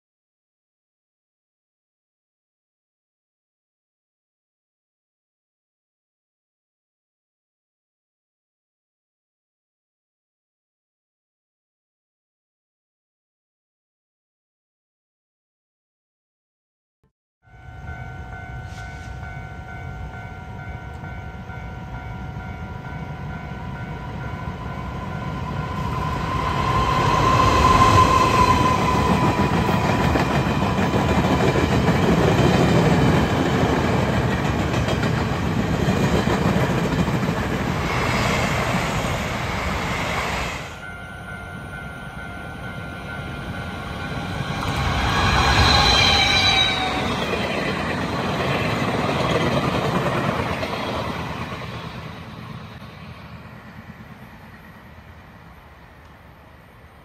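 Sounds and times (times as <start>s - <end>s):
train rumbling and clattering past: 17.6s - 57.0s
train wheels squealing: 18.4s - 19.6s, 24.2s - 31.4s, 37.8s - 49.6s
level crossing warning tones: 40.8s - 47.6s.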